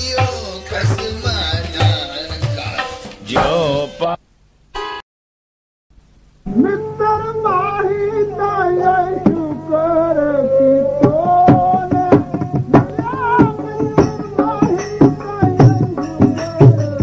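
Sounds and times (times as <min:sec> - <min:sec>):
tabla strokes: 0:11.0 - 0:17.0.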